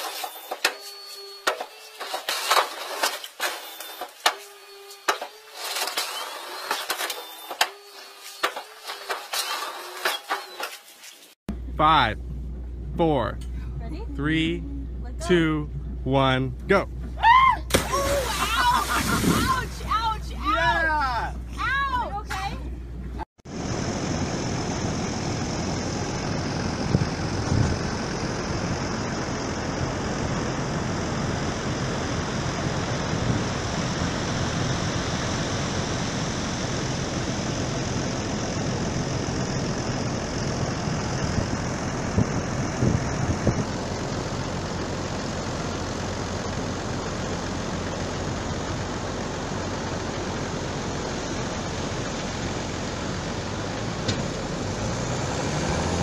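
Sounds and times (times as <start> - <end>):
engine running: 11.5 - 56.0.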